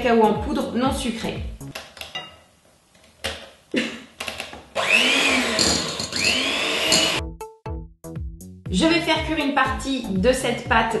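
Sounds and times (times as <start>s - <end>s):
electric hand mixer whining: 4.8s - 7.2s.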